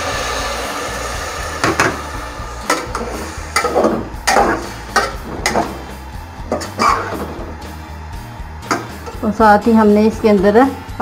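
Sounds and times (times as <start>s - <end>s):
water hissing in pot: 0.0s - 9.3s
metal spoon scraping pot: 6.5s - 7.3s.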